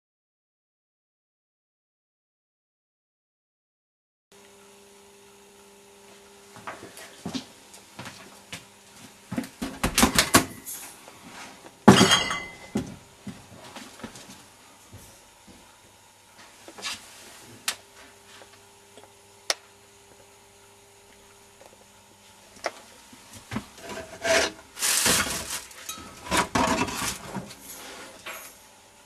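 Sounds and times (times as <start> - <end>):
scraping and rubbing on refrigerator: 23.3 - 28.2.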